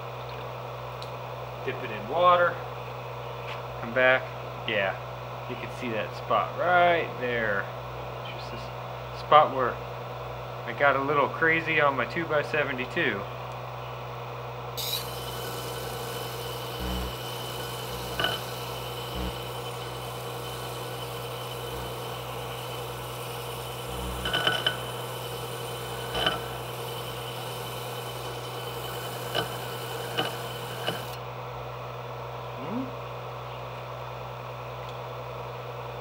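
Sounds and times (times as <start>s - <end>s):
disc sander humming: 14.8s - 31.2s.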